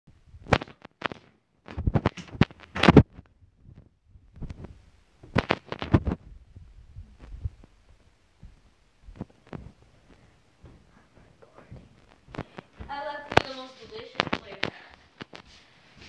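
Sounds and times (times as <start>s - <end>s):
footsteps on wooden floor: 6.0s - 16.0s.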